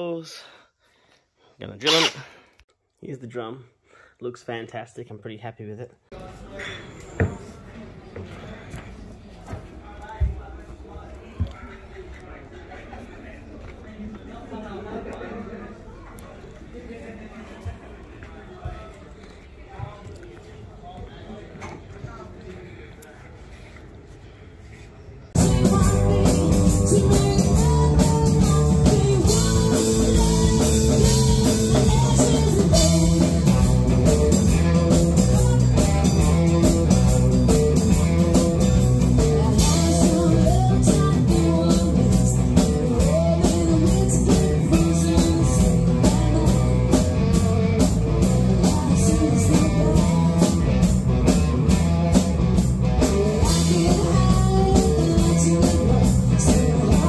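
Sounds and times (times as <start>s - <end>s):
woman singing: 25.4s - 36.7s, 39.0s - 47.1s, 48.2s - 50.8s, 53.0s - 57.0s
rock band playing: 25.4s - 57.0s.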